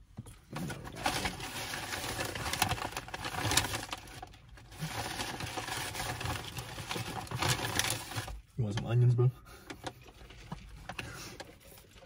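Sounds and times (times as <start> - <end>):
paper bag and wrappers rustling: 0.4 - 8.5.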